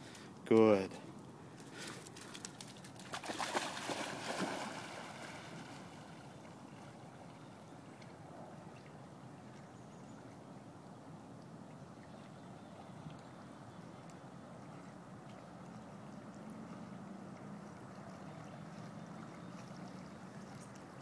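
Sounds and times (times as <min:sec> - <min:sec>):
faint water lapping: 0:00.0 - 0:21.0
dog splashing into water: 0:02.2 - 0:06.2.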